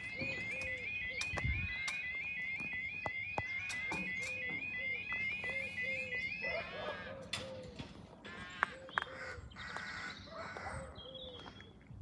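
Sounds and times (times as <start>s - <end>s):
level crossing alarm warbling: 0.0s - 9.4s.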